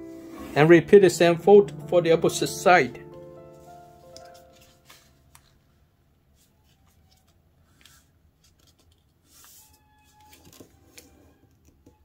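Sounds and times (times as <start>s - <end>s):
paper rustling and crinkling: 3.6s - 5.7s, 6.3s - 11.3s.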